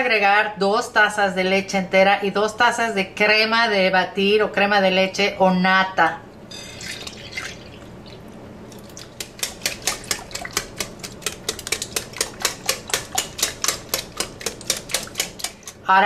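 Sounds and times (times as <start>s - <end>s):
whisk clicking against glass: 9.2s - 15.8s.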